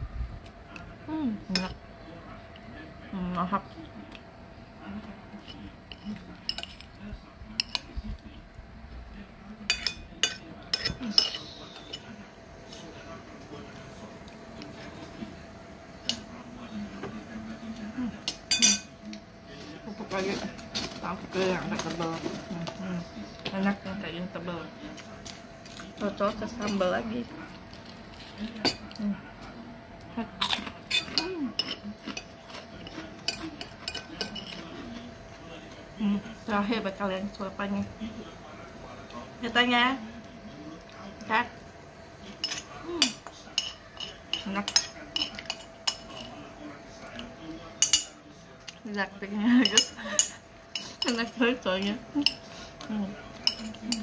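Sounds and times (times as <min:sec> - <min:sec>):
metal spoon clinking on plate: 0:09.7 - 0:12.1, 0:18.3 - 0:18.9, 0:53.4 - 0:54.0.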